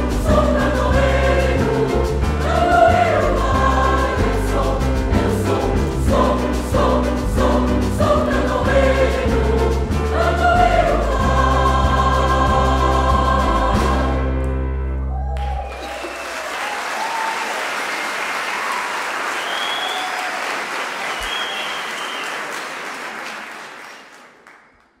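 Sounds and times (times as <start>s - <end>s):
choir with instrumental accompaniment: 0.0s - 15.2s
audience cheers and whistles: 15.1s - 23.0s
audience applause: 15.1s - 25.0s.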